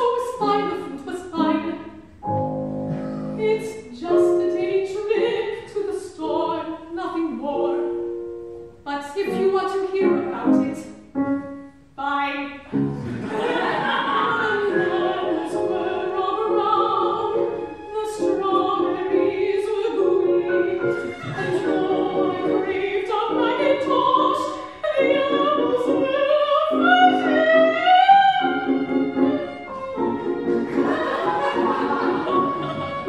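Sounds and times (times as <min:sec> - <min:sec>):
soprano singing operatic style: 0:00.0 - 0:02.1, 0:03.4 - 0:11.1, 0:13.4 - 0:33.0
grand piano: 0:00.0 - 0:33.0
violin: 0:12.7 - 0:33.0.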